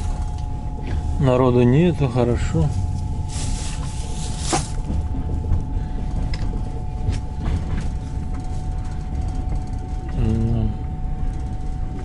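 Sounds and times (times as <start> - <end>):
train carriage rumble and whine: 0.0 - 12.0
train wheel knocks: 4.4 - 10.2.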